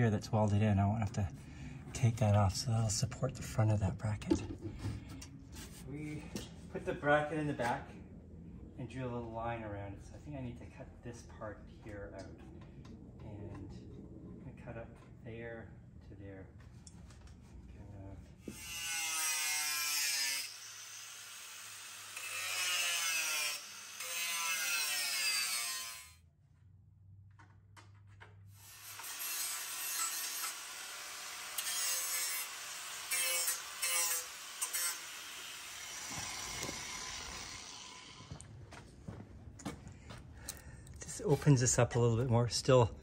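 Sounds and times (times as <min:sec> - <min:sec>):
power tool cutting metal: 0:18.5 - 0:26.2, 0:28.6 - 0:38.3.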